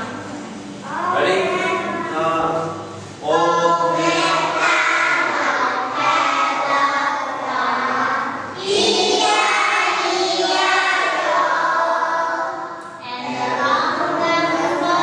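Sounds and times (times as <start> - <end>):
children singing in unison: 3.2 - 15.0.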